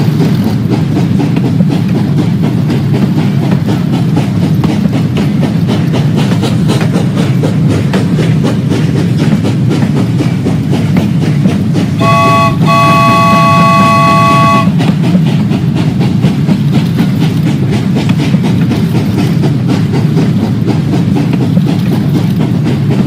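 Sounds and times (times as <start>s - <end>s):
train rolling with clickety-clack: 0.0s - 23.0s
chime whistle blasts: 12.0s - 14.7s.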